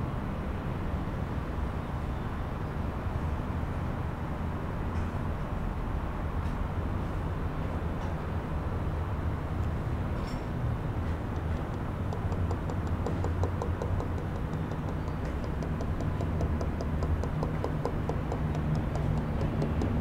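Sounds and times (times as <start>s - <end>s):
fast even ticking: 11.3s - 20.0s.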